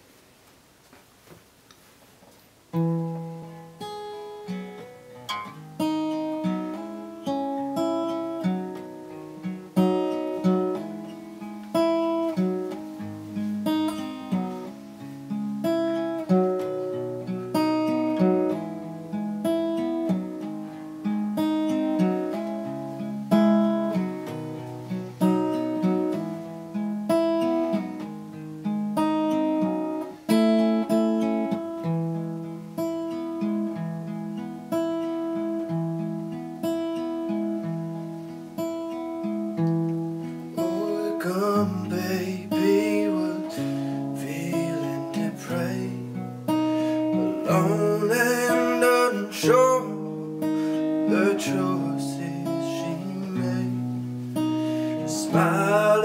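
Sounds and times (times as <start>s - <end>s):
acoustic guitar plucked notes: 2.7s - 56.0s.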